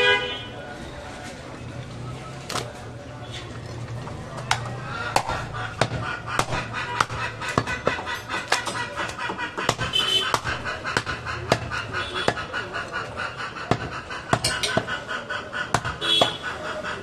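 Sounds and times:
knife chopping on wooden block: 4.5s - 12.5s, 13.7s - 15.0s, 15.7s - 16.5s.

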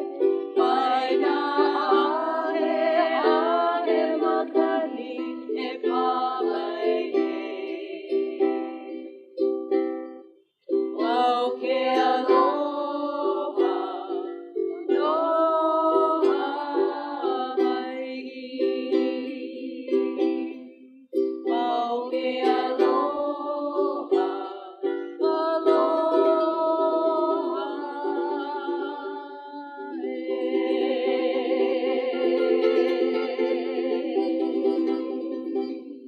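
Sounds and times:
women singing together: 0.0s - 9.1s, 10.9s - 20.8s, 21.4s - 36.0s
strummed ukulele: 0.0s - 36.0s.

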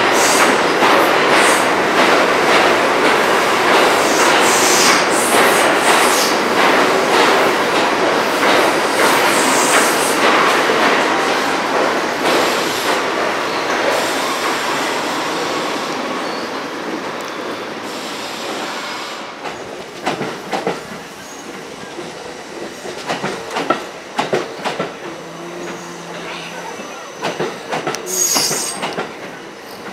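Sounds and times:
subway train wheel rumble: 0.0s - 29.9s
wheel clacks over rail joints: 27.2s - 29.9s.

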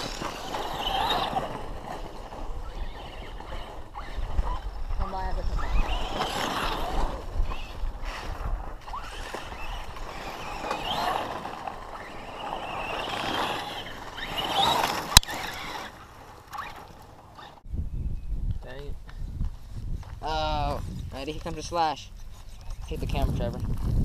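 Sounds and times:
tyres on dirt: 0.0s - 17.7s
electric motor whine: 8.8s - 16.8s.

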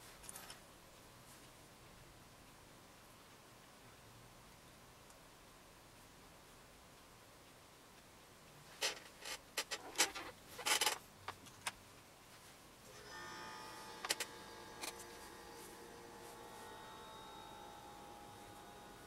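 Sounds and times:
handling clicks and rustles: 8.8s - 11.8s
faint high-pitched hum: 11.9s - 19.0s.

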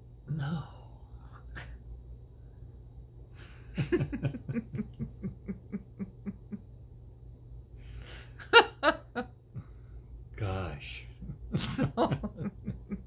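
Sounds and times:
person laughing: 3.6s - 6.8s, 11.2s - 13.0s.

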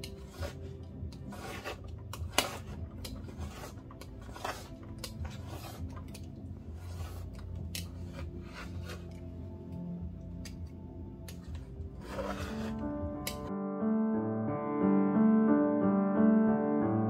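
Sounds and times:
palette knife scraping paint: 0.0s - 9.3s, 11.3s - 13.5s.

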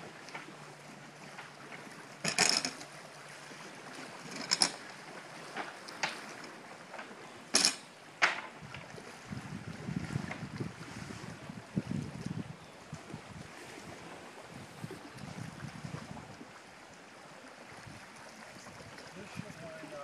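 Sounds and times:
wooden and metal knocks and clanks: 7.5s - 8.8s.

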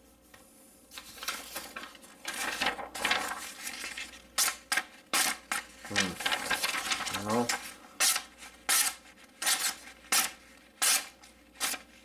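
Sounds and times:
knife blade slicing paper: 8.0s - 11.9s.

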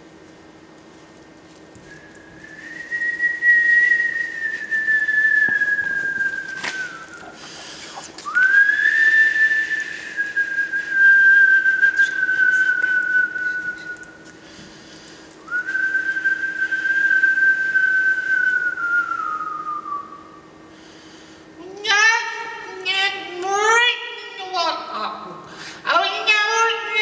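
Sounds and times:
faint steady hum: 0.0s - 27.0s
long whistled notes: 1.8s - 14.3s, 15.4s - 20.5s.

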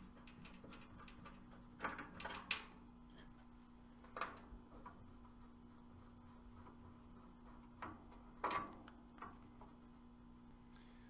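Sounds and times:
small metal clicks and knocks: 0.0s - 3.4s
faint low hum: 0.0s - 11.0s.

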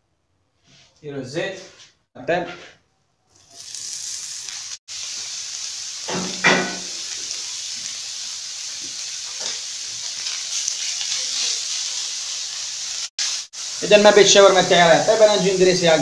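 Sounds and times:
chicken sizzling on griddle: 3.3s - 16.0s.

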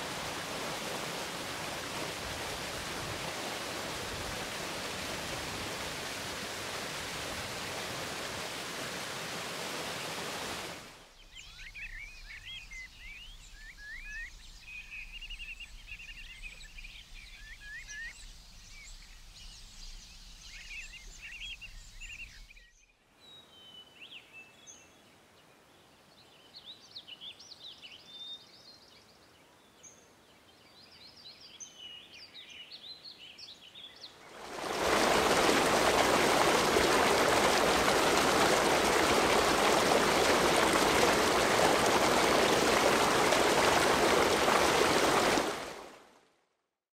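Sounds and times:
waterfall splashing into a pool: 0.0s - 10.9s, 34.3s - 46.0s.

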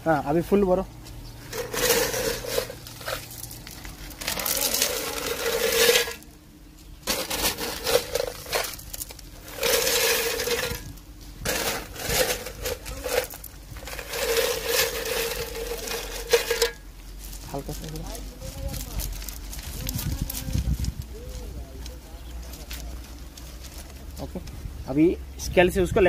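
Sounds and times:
crushed stone poured into metal bucket: 1.4s - 6.3s, 7.0s - 16.9s.

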